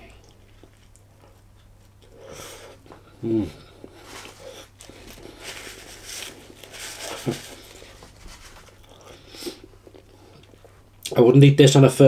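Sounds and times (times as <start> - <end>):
man chewing food: 0.0 - 11.1
napkin rubbing mouth: 3.8 - 10.7.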